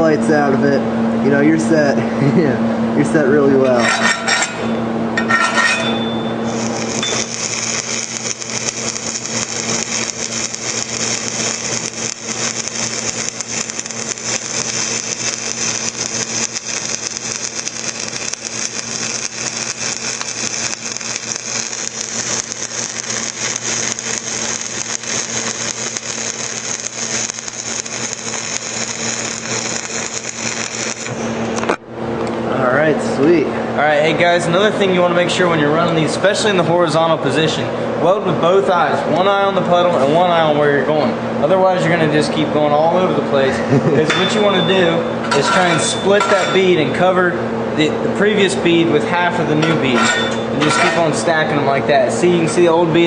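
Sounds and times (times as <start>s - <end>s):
welding arc crackling sizzle: 6.4s - 31.8s, 45.5s - 46.8s.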